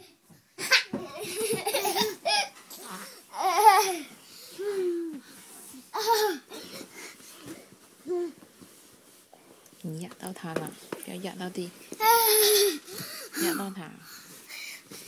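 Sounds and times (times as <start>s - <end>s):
young child laughing and babbling: 3.3s - 5.2s, 12.0s - 12.8s.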